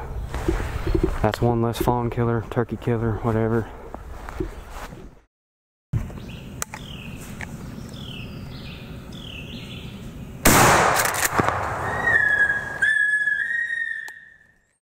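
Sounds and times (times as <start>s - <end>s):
birds calling: 6.0s - 10.7s, 11.7s - 14.8s
shotgun blast: 10.4s - 12.8s
high steady whistling tone: 11.8s - 14.7s.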